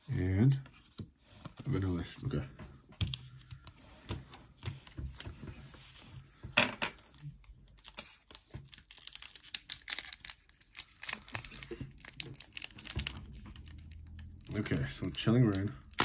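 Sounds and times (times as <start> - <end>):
foil pack crinkling: 7.6 - 16.0.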